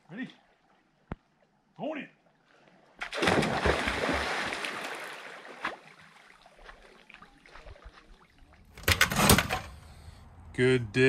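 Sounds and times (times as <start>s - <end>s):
person diving into water: 3.0s - 8.4s.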